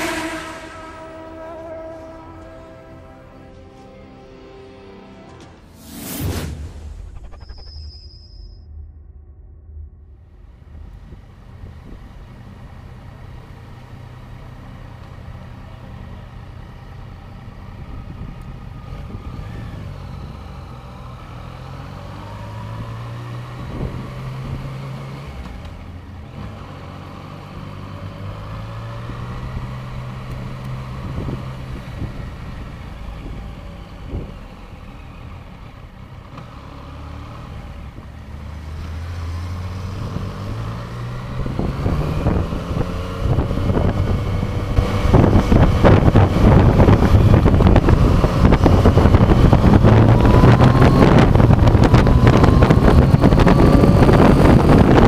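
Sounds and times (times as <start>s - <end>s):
motorcycle engine revving: 36.0s - 55.0s.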